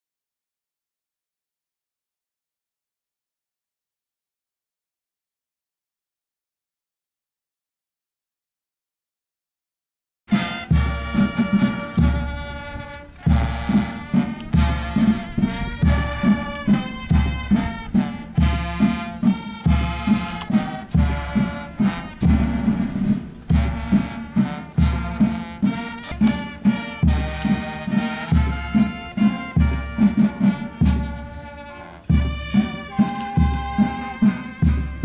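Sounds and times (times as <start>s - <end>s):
brass band playing a march: 10.3s - 35.0s
steady drum beat: 10.3s - 35.0s.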